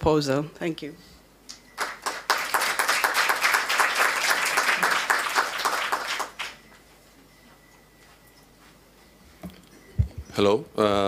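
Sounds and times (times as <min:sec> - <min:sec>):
audience applauding: 0:01.8 - 0:06.8.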